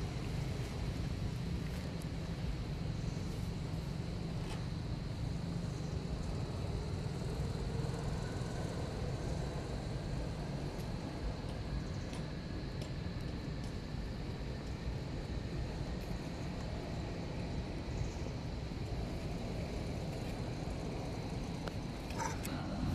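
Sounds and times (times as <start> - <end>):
low outdoor rumble: 0.0 - 22.9
faint ticks: 21.6 - 22.6.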